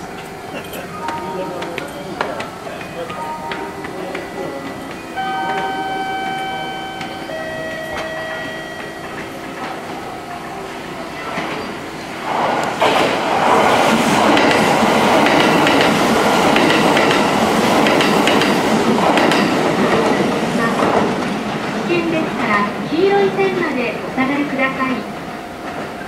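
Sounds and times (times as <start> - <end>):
steady held tones: 0.0 - 11.2
train passing with wheel clatter: 0.0 - 26.0.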